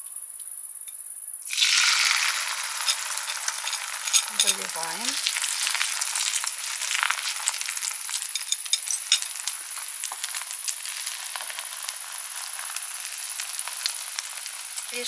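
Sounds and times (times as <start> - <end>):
omelette sizzling in oil: 1.5 - 15.0
whisk clinking in pan: 2.7 - 4.7, 8.1 - 9.4.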